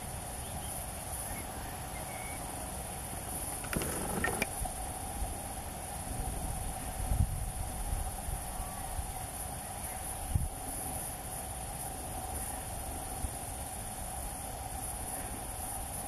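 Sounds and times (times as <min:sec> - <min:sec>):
insects chirring: 0:00.0 - 0:16.0
clicks and rustling: 0:03.6 - 0:04.5.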